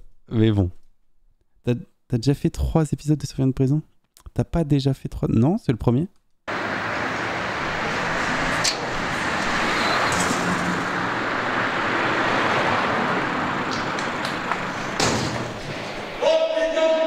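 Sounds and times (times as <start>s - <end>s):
passing cars: 6.5s - 17.0s.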